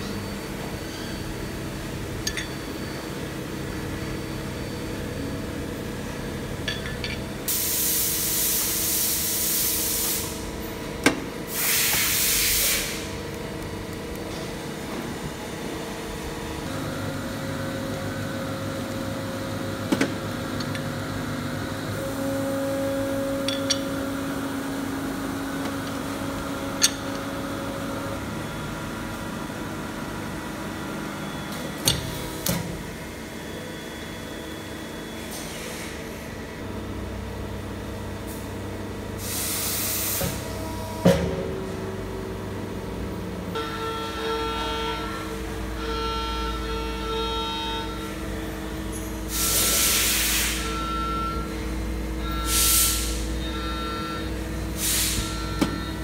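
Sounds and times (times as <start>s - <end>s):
hydraulic press humming: 0.0s - 34.1s, 39.2s - 56.0s
loud hiss: 11.5s - 13.1s.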